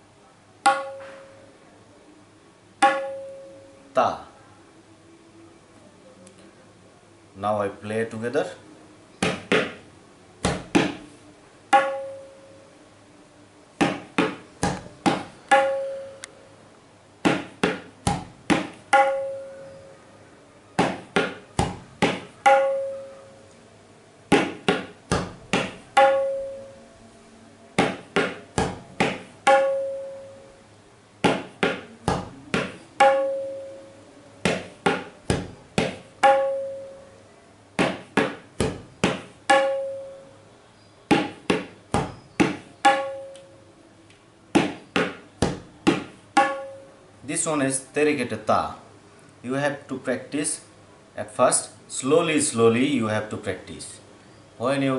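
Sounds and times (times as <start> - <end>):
tabla strokes: 0.6 - 1.4, 2.8 - 3.6, 11.7 - 12.5, 13.8 - 16.2, 17.2 - 19.7, 20.8 - 23.2, 24.3 - 26.8, 27.8 - 30.5, 31.2 - 37.0, 37.8 - 40.3, 41.1 - 43.3, 44.5 - 46.9.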